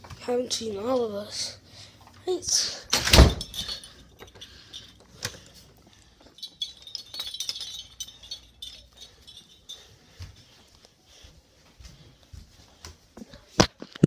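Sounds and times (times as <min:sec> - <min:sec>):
small hard objects clinking: 0:06.2 - 0:09.8.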